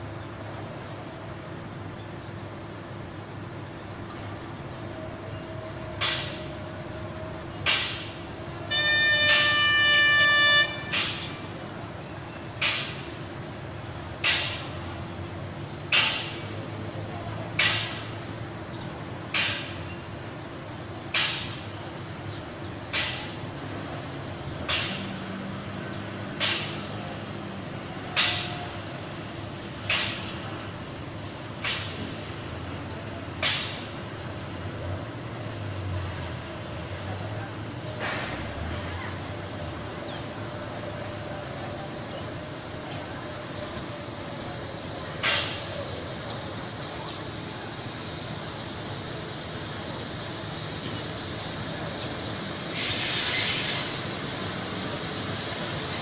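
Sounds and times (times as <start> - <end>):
electric train horn: 8.6 - 11.2.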